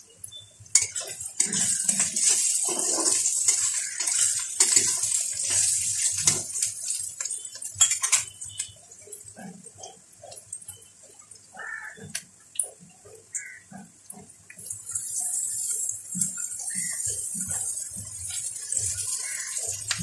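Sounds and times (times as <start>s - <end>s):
onions sizzling in oil: 0.3s - 9.2s, 14.6s - 20.0s
metal spatula scraping pan: 0.7s - 8.6s.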